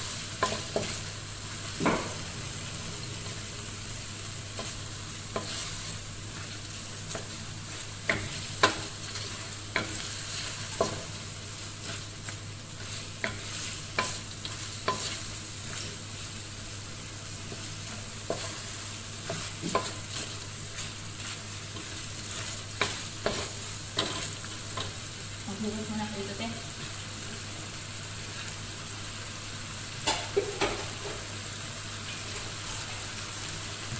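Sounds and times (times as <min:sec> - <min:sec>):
spatula scraping and knocking wok: 0:00.0 - 0:16.4, 0:17.2 - 0:26.9
chicken sizzling in a wok: 0:00.0 - 0:33.9.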